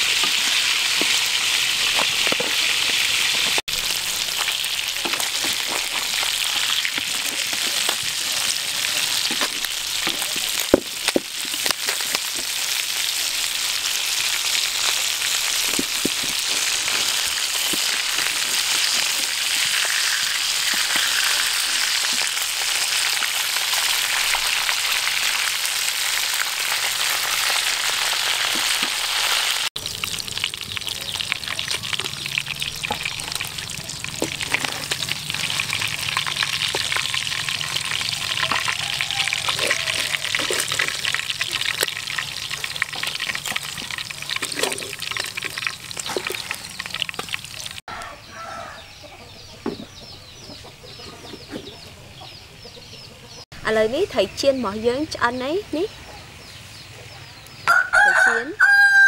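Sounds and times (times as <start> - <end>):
fish frying in hot oil: 0.0 - 47.8
metal spatula scraping wok: 31.6 - 47.4.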